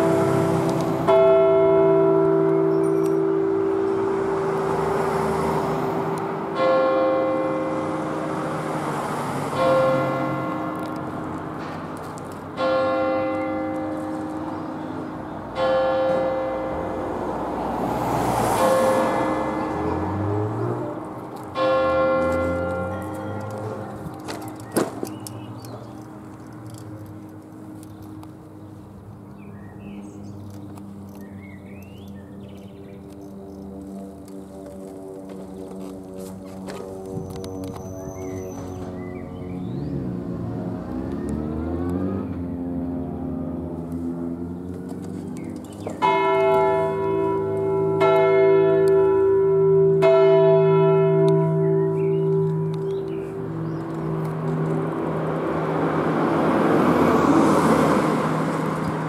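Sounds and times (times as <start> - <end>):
church bell humming: 0.0 - 28.3, 45.8 - 56.6
birds chirping: 22.9 - 34.2, 36.9 - 41.8, 44.5 - 46.6, 51.4 - 54.7.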